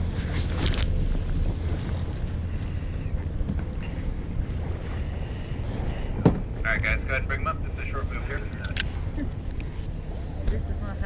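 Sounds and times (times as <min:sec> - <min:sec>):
boat engine running: 0:00.0 - 0:11.0
sea washing: 0:00.0 - 0:11.0.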